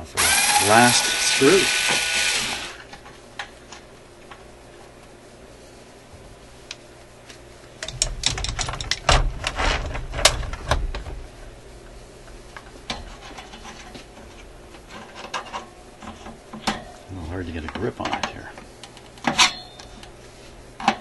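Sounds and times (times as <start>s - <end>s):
electric screwdriver motor hum: 0.2s - 2.8s
panel scraping: 8.0s - 10.6s.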